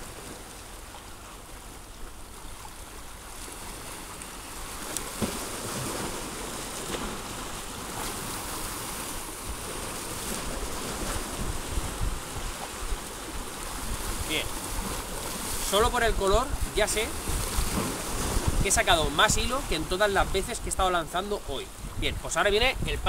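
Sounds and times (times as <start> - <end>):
sea surf: 0.0 - 23.0
wind on microphone: 4.6 - 21.0, 21.6 - 23.0.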